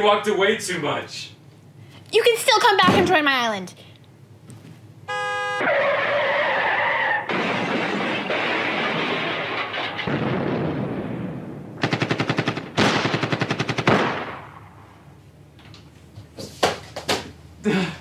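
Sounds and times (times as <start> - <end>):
automatic gunfire: 7.3 - 10.4, 11.8 - 14.6.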